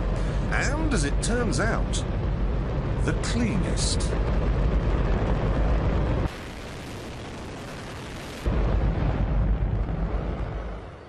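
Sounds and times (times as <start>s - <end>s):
rocket engine roaring: 0.0s - 11.0s.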